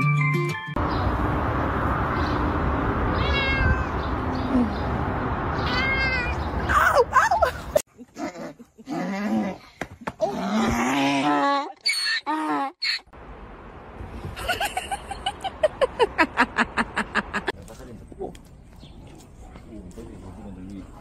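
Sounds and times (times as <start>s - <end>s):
cat meowing: 3.1s - 4.0s, 5.6s - 6.4s.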